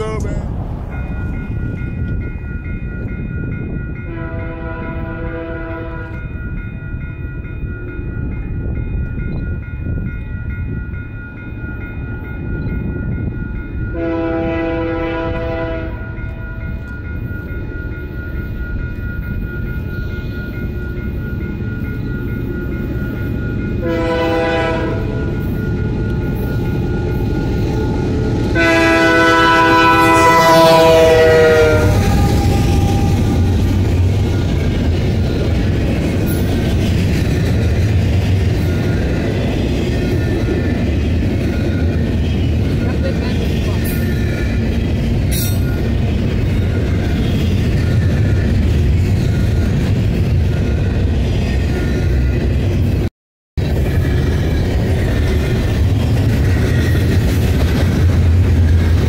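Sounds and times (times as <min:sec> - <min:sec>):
passing train rumble: 0:00.0 - 0:59.0
locomotive air horn: 0:04.1 - 0:06.1, 0:14.0 - 0:16.1, 0:23.8 - 0:25.2, 0:28.5 - 0:33.5.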